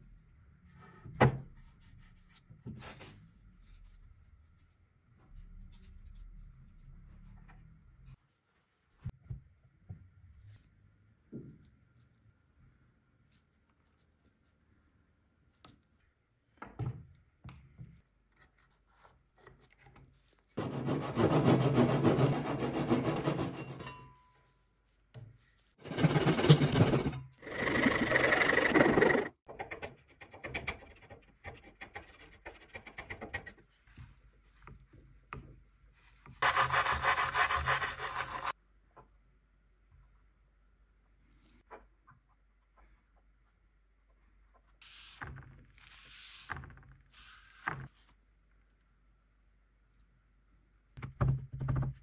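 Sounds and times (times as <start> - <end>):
handsaw cutting wood: 20.6 - 23.8, 25.8 - 29.3, 36.4 - 38.5
scraping on wooden board: 25.8 - 29.3.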